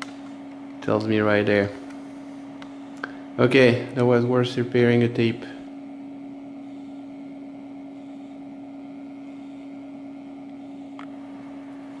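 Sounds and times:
computer electrical hum: 0.0s - 12.0s.

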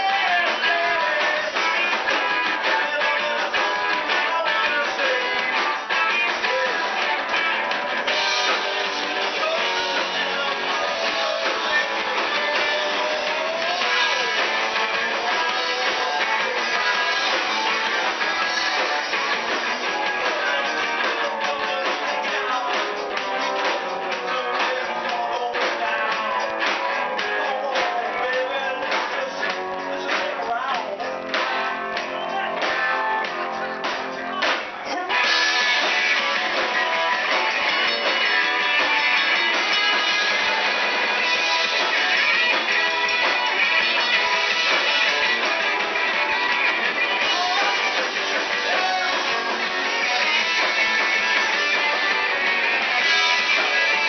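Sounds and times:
live rock band playing: 0.0s - 54.0s
strummed electric guitars: 0.0s - 54.0s
drum hits: 28.9s - 54.0s.

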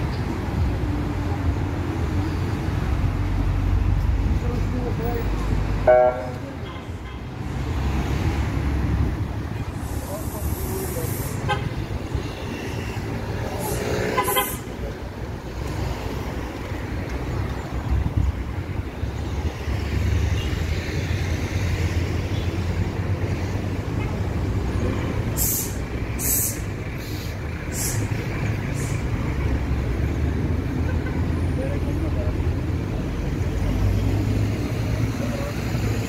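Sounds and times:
road traffic rumble: 0.0s - 36.0s
short high hisses: 25.4s - 28.1s.

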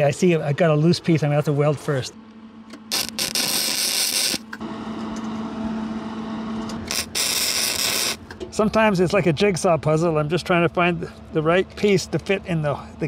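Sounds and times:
steady low hum: 0.0s - 13.0s
welding arc crackling and hissing: 2.8s - 4.6s, 6.8s - 8.3s.

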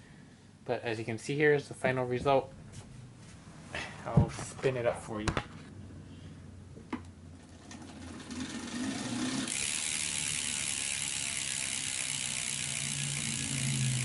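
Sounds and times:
wheel and roller whirring: 7.4s - 14.0s
freehub ratcheting: 7.9s - 14.0s.

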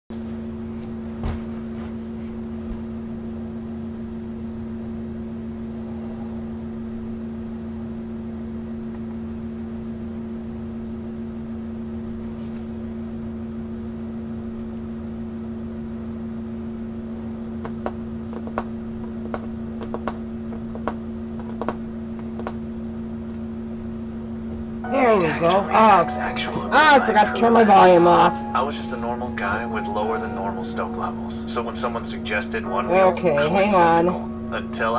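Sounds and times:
electrical hum: 0.1s - 34.9s
typing on keyboard: 17.6s - 22.6s.

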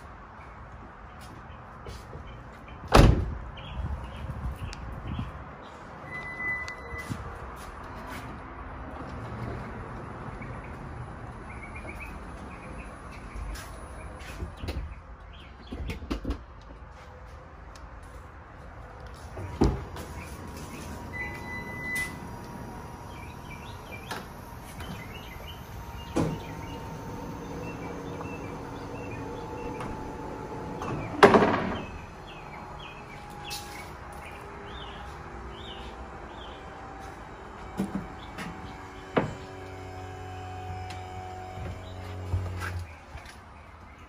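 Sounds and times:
short beep: 6.1s - 7.1s
motor humming: 19.2s - 42.9s
mechanical clunks: 19.4s - 33.9s.

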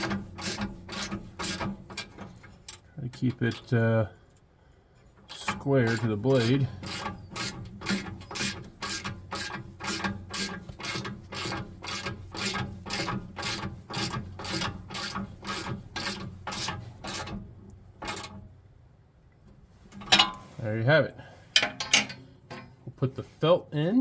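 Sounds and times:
hand ratchet clicking: 5.3s - 17.3s.

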